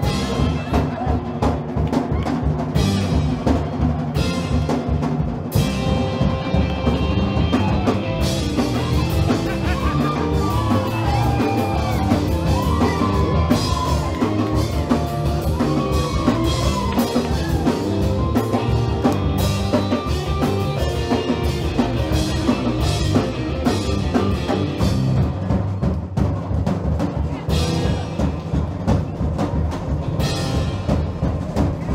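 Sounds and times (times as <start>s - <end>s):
drum kit: 0.0s - 31.9s
rock band playing: 0.0s - 31.9s
electric guitar: 5.5s - 25.7s.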